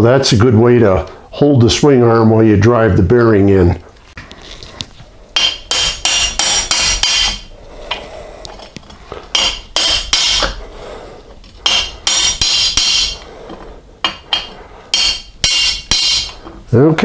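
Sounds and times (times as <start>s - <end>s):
hammer striking metal socket: 5.4s - 7.4s, 9.3s - 10.6s, 11.6s - 13.2s, 14.0s - 16.4s.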